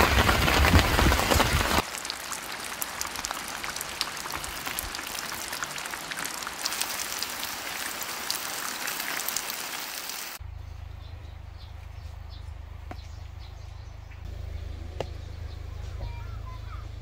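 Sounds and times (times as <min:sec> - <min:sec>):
rain pattering: 0:00.0 - 0:10.4.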